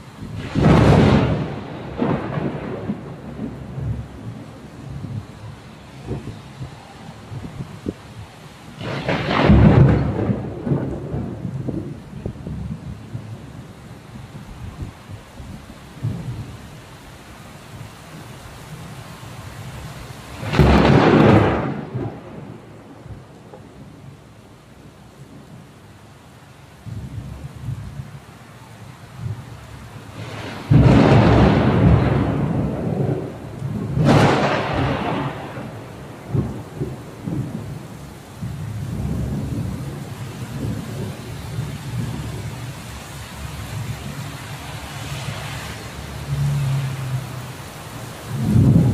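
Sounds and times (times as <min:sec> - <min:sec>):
thunder rumbling: 0:00.0 - 0:16.7, 0:20.2 - 0:25.7, 0:29.1 - 0:48.9
steady rain: 0:00.0 - 0:48.9
thunder clap: 0:00.3 - 0:04.4, 0:08.8 - 0:12.9, 0:20.4 - 0:23.8, 0:30.2 - 0:37.8, 0:48.3 - 0:48.9.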